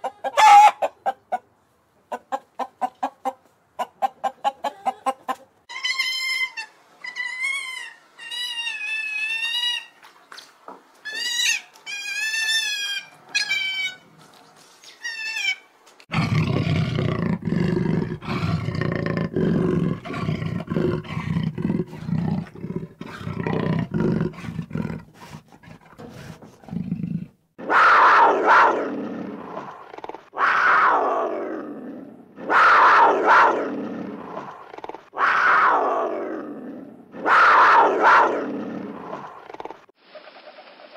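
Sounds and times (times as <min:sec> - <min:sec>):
loud animal roars: 0:16.1 - 0:39.7.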